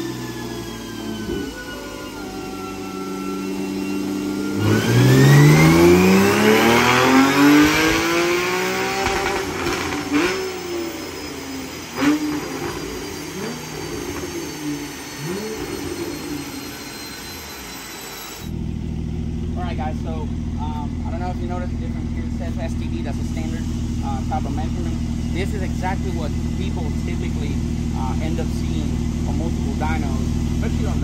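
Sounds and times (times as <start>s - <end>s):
car engine revving: 0.0s - 31.0s
exhaust cracks: 6.8s - 10.7s.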